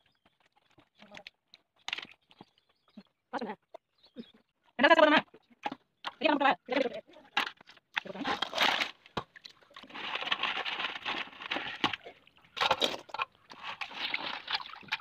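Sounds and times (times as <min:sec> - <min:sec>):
water sloshing in a steel basin: 0:06.6 - 0:15.0.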